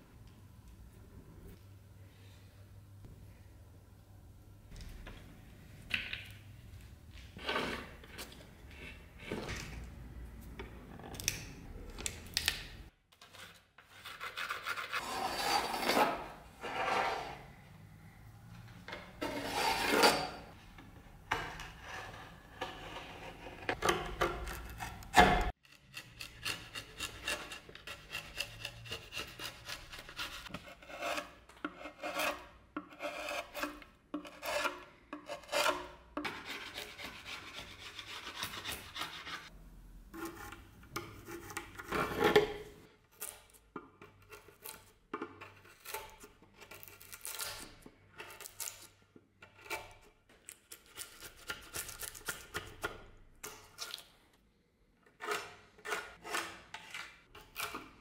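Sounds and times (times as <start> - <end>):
chisel scraping and cutting wood: 13.2 - 17.5, 18.9 - 53.9, 55.0 - 58.0.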